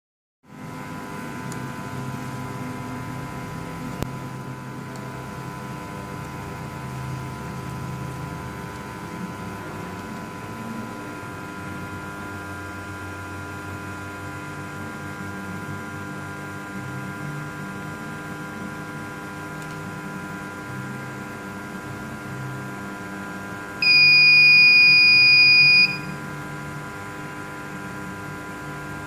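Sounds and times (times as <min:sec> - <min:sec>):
machine hum: 0:00.5 - 0:29.0
whining tones: 0:23.8 - 0:26.2.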